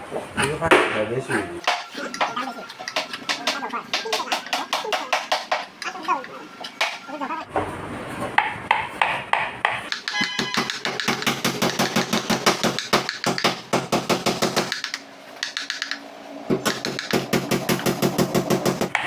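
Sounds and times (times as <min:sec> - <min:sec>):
hammer tapping a chisel: 0:01.6 - 0:07.1, 0:08.4 - 0:16.0, 0:16.6 - 0:18.0.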